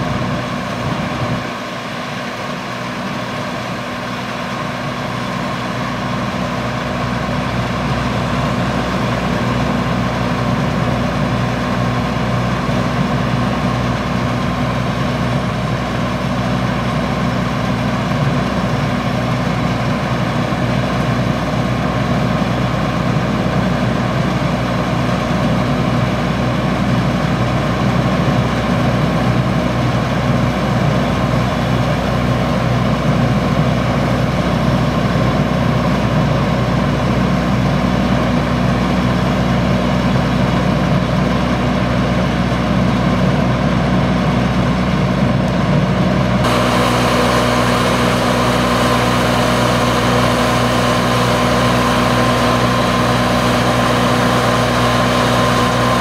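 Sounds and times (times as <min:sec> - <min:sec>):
combine harvester droning: 0:00.0 - 0:56.0
auger unloading grain: 0:43.6 - 0:56.0.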